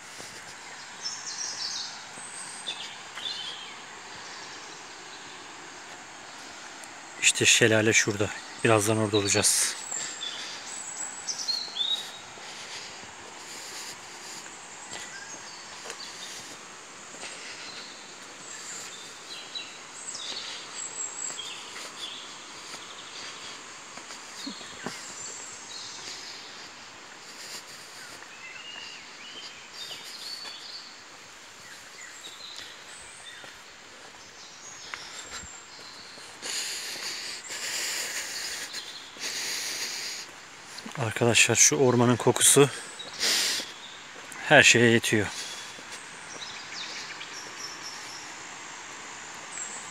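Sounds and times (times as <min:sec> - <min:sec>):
birds chirping and singing: 0:00.1 - 0:05.5, 0:07.2 - 0:16.6, 0:17.2 - 0:31.0, 0:31.6 - 0:48.4
waterfall rushing: 0:01.0 - 0:13.1.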